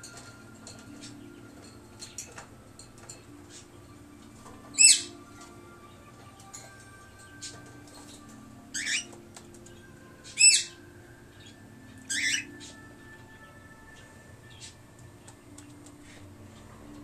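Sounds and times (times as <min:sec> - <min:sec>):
cockatiel calls: 0:04.8 - 0:05.2, 0:08.7 - 0:09.2, 0:10.3 - 0:10.8, 0:12.1 - 0:12.8.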